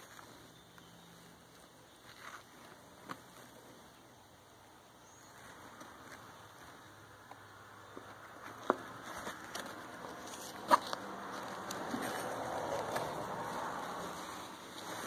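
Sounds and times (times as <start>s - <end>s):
nylon backpack fabric rustling: 9.0s - 15.0s.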